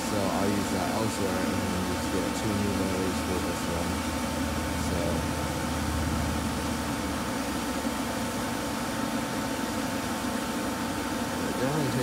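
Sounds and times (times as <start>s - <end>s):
electric blower rushing air: 0.0s - 12.0s
low hum: 3.2s - 8.6s.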